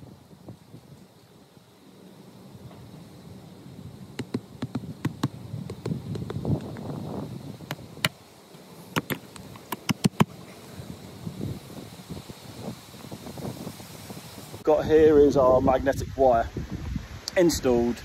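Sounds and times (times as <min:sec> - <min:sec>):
pegs knocked into lawn: 0:04.2 - 0:06.9, 0:08.9 - 0:10.4.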